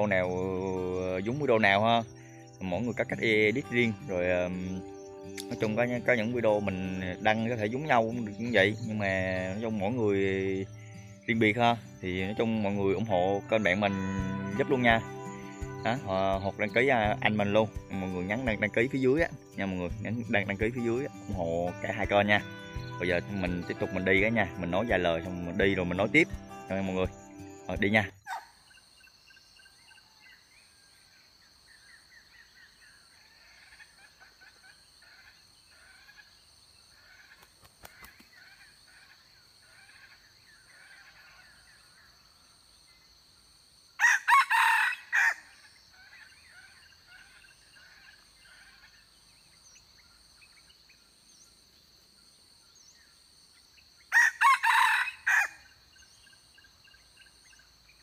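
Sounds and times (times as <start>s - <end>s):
faint chirping: 0.0s - 44.0s, 55.5s - 58.0s
rooster crowing: 44.0s - 48.0s, 54.1s - 55.8s.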